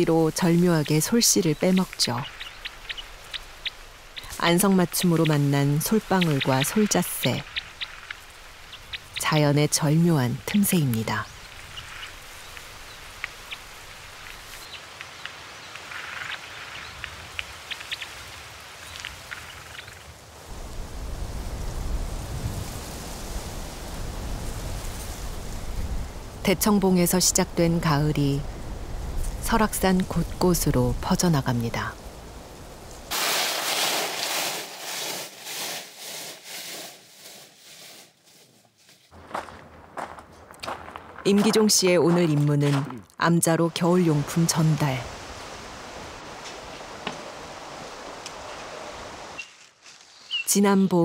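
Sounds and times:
birds ticking and chipping: 0.0 - 20.1, 49.3 - 50.6
steady hiss: 31.9 - 38.1
rhythmic dry rustling and scraping: 33.1 - 41.1.

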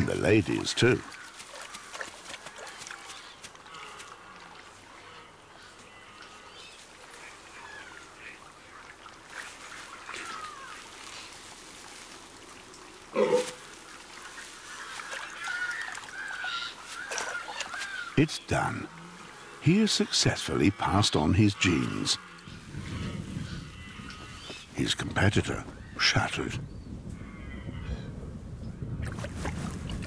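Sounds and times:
red deer calling: 16.4 - 25.3.

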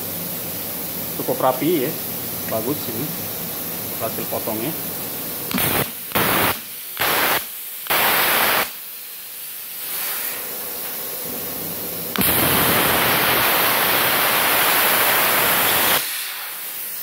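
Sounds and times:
plasma cutter arc hissing: 0.0 - 17.0
torch air hiss: 0.0 - 17.0.

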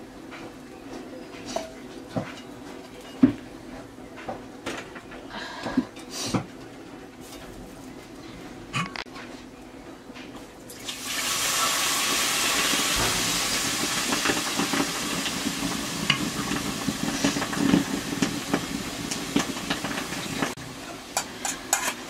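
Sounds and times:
food sizzling with crackles: 10.7 - 22.0
steam hissing in a hot wok: 10.8 - 22.0.

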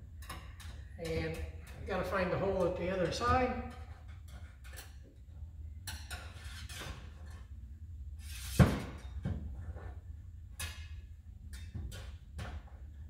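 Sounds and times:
wire and tools tapping sheet metal: 0.0 - 7.5, 10.5 - 12.9.

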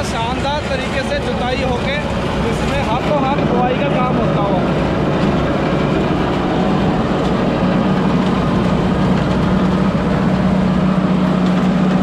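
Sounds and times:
steady hum: 0.0 - 12.0
tractor diesel engine under load: 0.0 - 12.0.

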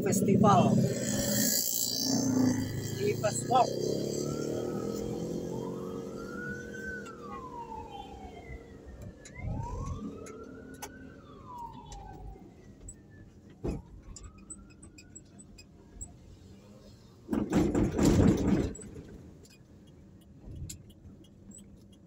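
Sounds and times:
siren wailing: 0.0 - 15.3
vehicle running noise: 0.0 - 22.0.

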